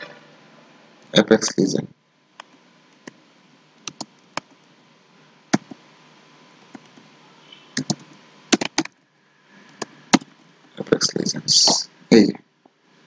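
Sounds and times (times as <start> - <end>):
computer keyboard typing: 3.8 - 4.6, 7.8 - 9.0.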